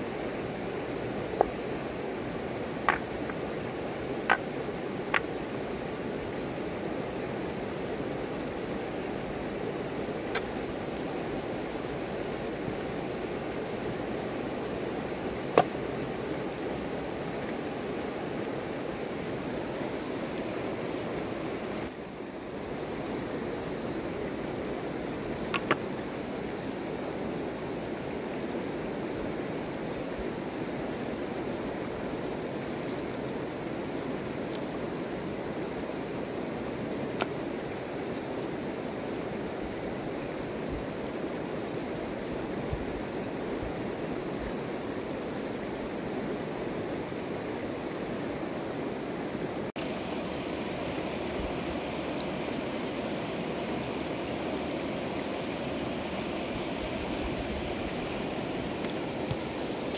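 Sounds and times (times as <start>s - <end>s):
river rushing over stones: 0.0s - 59.9s.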